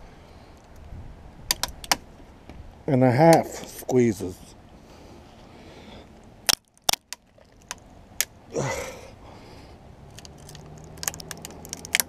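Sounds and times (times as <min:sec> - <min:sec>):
plastic and glass cracking: 0:06.4 - 0:07.8, 0:10.1 - 0:12.0.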